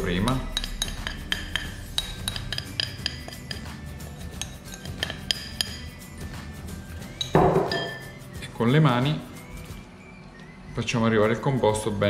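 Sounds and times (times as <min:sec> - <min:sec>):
metal spoon scraping glass bowl: 0:00.2 - 0:06.1.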